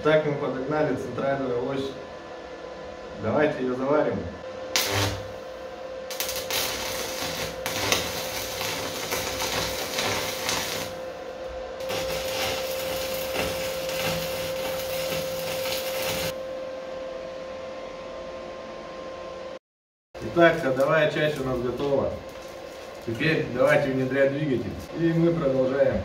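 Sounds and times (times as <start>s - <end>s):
steady hum: 0.0s - 19.6s, 20.2s - 26.0s
welding arc crackling: 4.7s - 16.4s, 20.2s - 24.2s.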